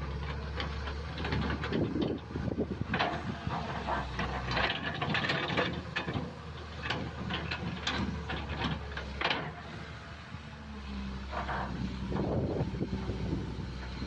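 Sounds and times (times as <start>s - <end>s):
diesel engine running: 0.0s - 14.0s
metallic clanks and rattles: 0.2s - 9.6s.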